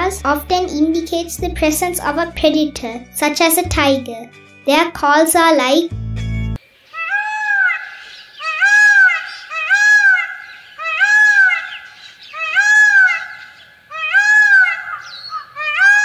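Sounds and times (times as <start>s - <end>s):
peafowl calling: 6.8s - 16.0s.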